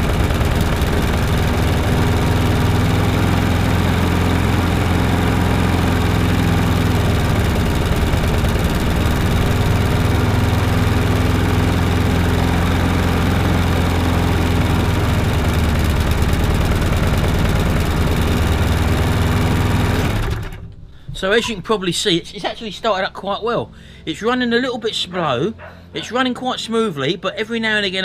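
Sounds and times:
lawnmower engine running: 0.0s - 20.8s.

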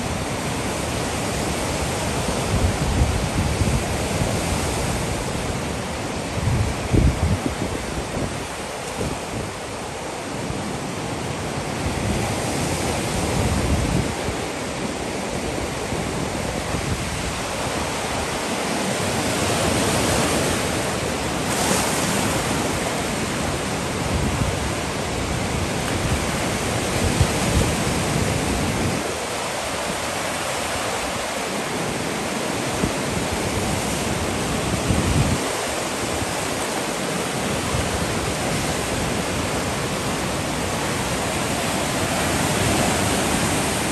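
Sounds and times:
waves breaking on beach: 0.0s - 43.9s
wind buffeting microphone: 0.2s - 10.0s, 11.7s - 43.9s.

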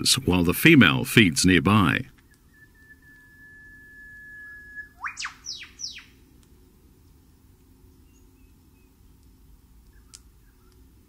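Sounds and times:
bird whistling calls: 2.2s - 6.2s.

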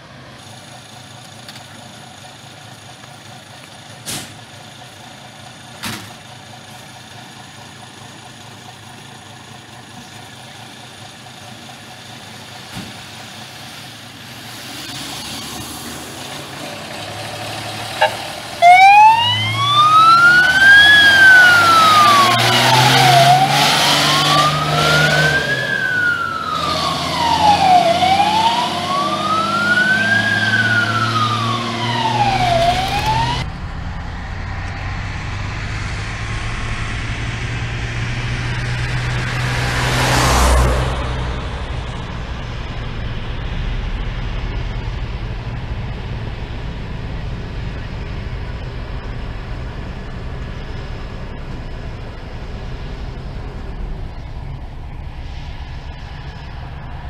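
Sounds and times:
distant road noise: 0.0s - 57.0s
fire truck engine: 0.0s - 57.0s
wailing siren: 18.0s - 34.4s.

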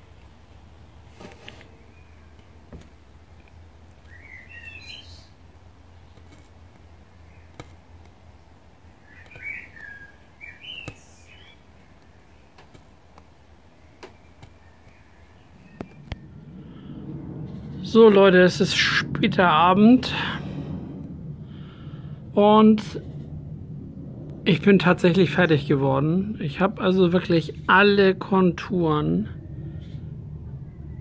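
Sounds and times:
low steady hum: 0.0s - 31.0s
bird chirping: 3.4s - 6.2s, 8.3s - 12.6s, 13.6s - 16.4s
needle pricking paper ticks: 6.1s - 6.9s, 7.5s - 8.3s, 10.6s - 13.4s, 14.0s - 15.0s.

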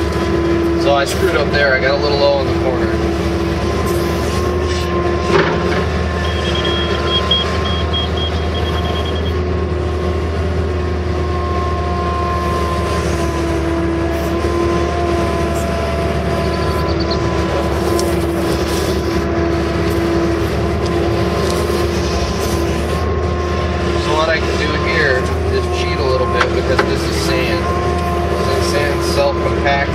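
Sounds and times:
excavator engine and hydraulics: 0.0s - 29.9s
high-pitched beeping: 6.1s - 9.4s, 15.6s - 17.8s.

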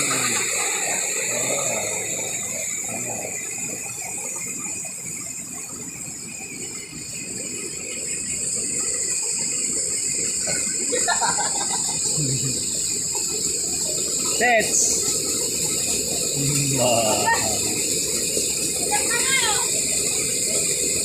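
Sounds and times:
high-pitched drone: 0.0s - 3.5s, 16.4s - 17.8s
water rushing over rocks: 0.0s - 21.0s.

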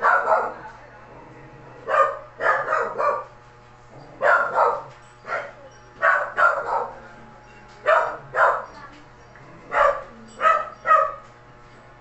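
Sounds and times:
dog barking: 0.0s - 0.6s, 1.8s - 3.4s, 4.2s - 7.0s, 7.8s - 8.9s, 9.7s - 11.3s.

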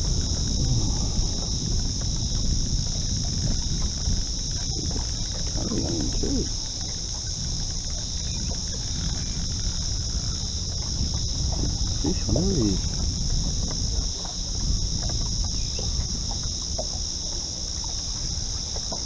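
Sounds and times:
low rumble: 0.0s - 7.8s
insects droning: 0.0s - 19.0s.

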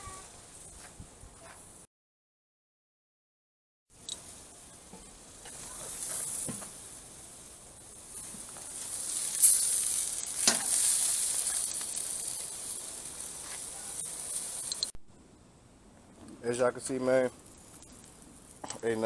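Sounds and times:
sharp pops and crackles: 4.0s - 7.1s, 7.8s - 15.1s, 15.9s - 19.0s
steaks sizzling on a grill: 4.1s - 15.0s, 16.5s - 19.0s.

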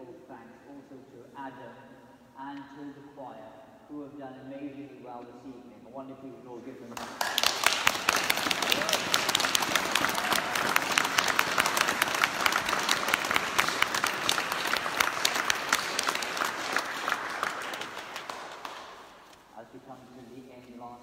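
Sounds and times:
congregation applauding: 7.0s - 19.3s.

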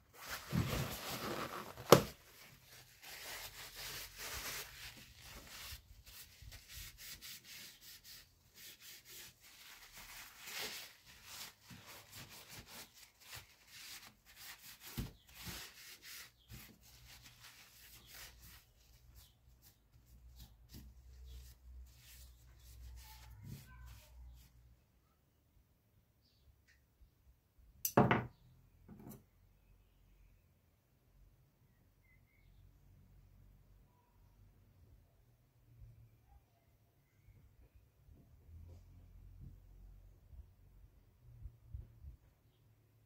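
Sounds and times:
paper towel rubbing on steel: 0.2s - 24.5s.

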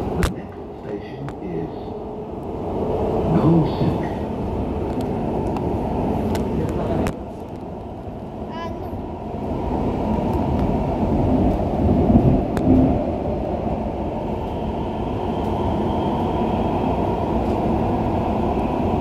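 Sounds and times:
train wheels rumbling on rail: 0.0s - 19.0s.

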